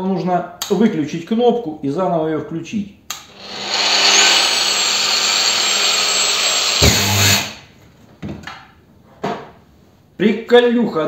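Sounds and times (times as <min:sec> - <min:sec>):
angle grinder running: 0:03.3 - 0:07.6.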